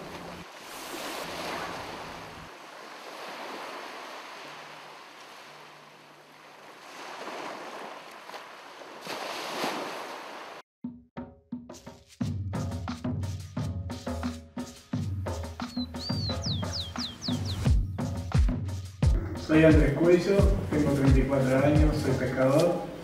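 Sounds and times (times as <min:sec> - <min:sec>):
ocean waves washing: 0:00.0 - 0:10.6.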